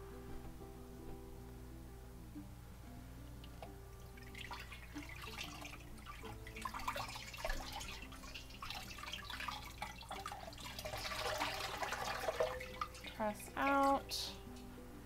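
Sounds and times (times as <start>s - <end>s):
water splashing in a sink: 4.0s - 14.3s.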